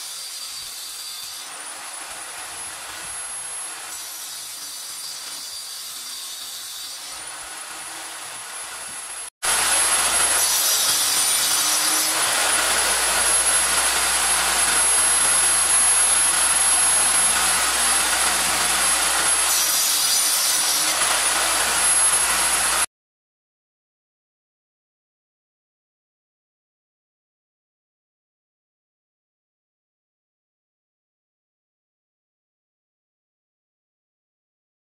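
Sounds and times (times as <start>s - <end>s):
table saw cutting board: 0.0s - 22.9s.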